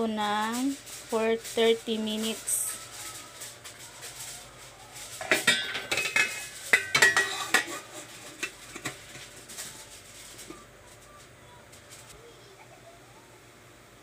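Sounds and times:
metal lid clanking on pot: 0:05.2 - 0:09.2.

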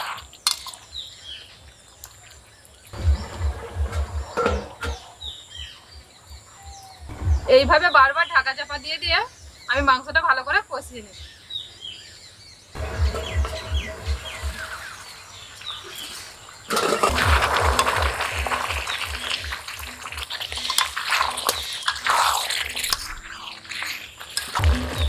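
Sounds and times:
birds chirping: 0:00.0 - 0:25.0
low rapid pulsing: 0:03.0 - 0:04.7, 0:07.1 - 0:08.4, 0:12.8 - 0:16.0
curry sizzling and bubbling: 0:12.8 - 0:25.0.

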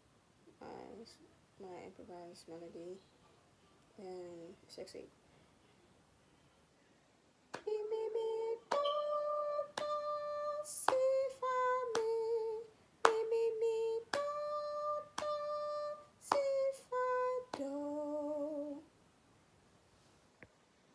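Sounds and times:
woman singing unaccompanied: 0:04.0 - 0:05.1, 0:07.5 - 0:19.0.

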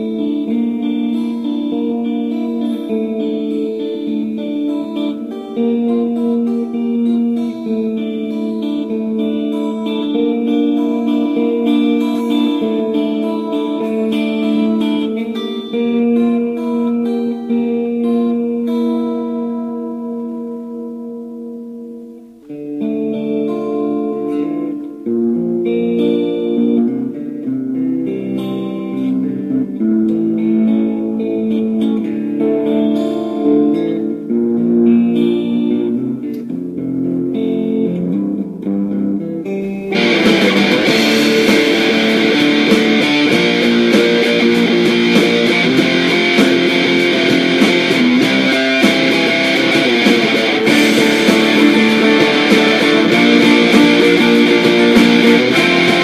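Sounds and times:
guitar instrumental: 0:00.0 - 0:56.0.

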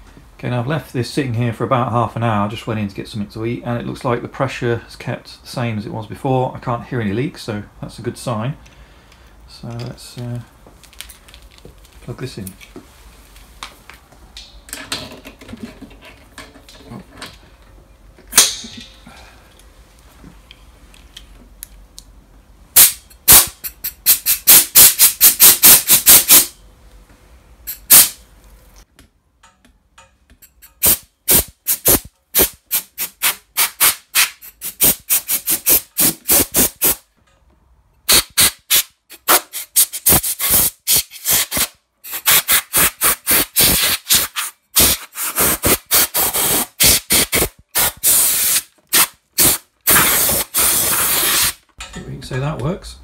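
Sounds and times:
compressed air hissing from blow gun: 0:22.8 - 0:26.5, 0:27.7 - 0:28.2, 0:30.8 - 0:37.0, 0:38.1 - 0:51.6.

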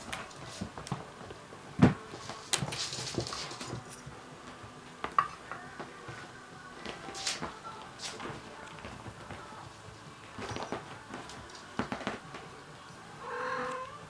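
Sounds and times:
knocks and scrapes on wicker basket: 0:01.8 - 0:03.9
rustling scrape: 0:02.1 - 0:04.0.

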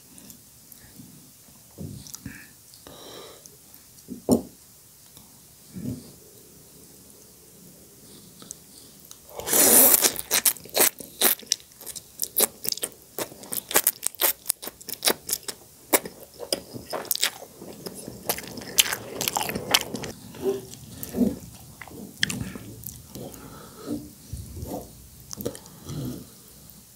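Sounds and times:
noodle slurping: 0:09.3 - 0:23.5
wet chewing and lip-smacking: 0:09.8 - 0:23.2.

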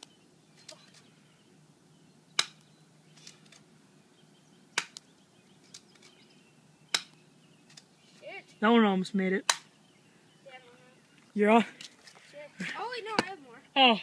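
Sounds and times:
airsoft pistol snaps: 0:02.4 - 0:02.7, 0:04.8 - 0:05.1, 0:06.9 - 0:07.2.

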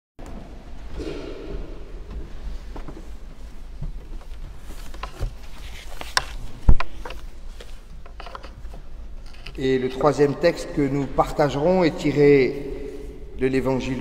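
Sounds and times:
loud thump: 0:00.9 - 0:03.1
papers rustling: 0:02.8 - 0:10.2.

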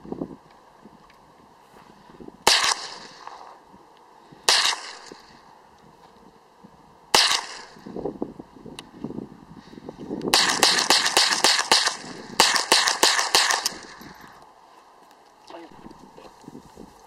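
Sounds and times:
rifle shots with echo: 0:02.4 - 0:03.6, 0:04.5 - 0:05.4, 0:07.1 - 0:07.9, 0:10.3 - 0:14.0.

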